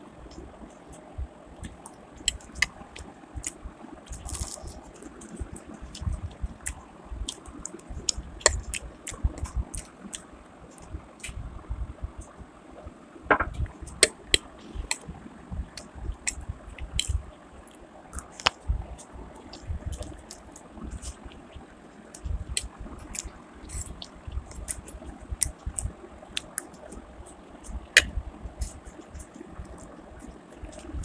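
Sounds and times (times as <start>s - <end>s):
mouth smacking clicks: 1.6s - 11.4s, 15.7s - 17.2s, 18.1s - 31.0s
wet chewing: 1.6s - 11.4s, 15.7s - 31.0s.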